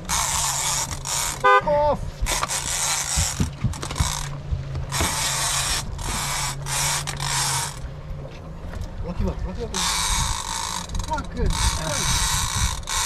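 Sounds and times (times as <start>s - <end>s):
fishing reel drag screaming: 4.9s - 7.8s, 9.7s - 13.0s.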